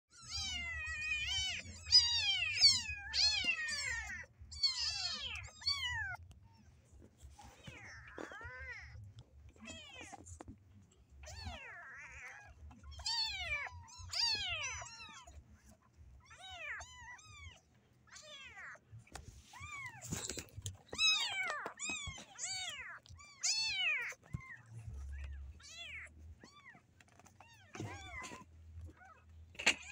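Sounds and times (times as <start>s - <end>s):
kittens meowing: 0.1s - 6.4s, 7.4s - 10.4s, 11.2s - 15.4s, 19.5s - 29.9s.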